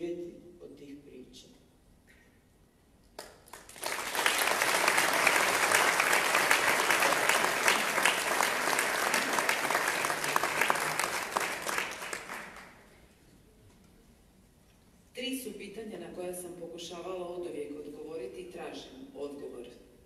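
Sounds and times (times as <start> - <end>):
audience applauding: 3.2 - 12.9.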